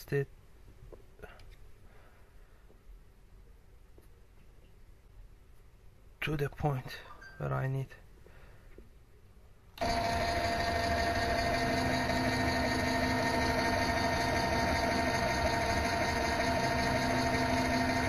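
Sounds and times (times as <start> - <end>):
lathe mechanical whine: 9.8 - 18.0.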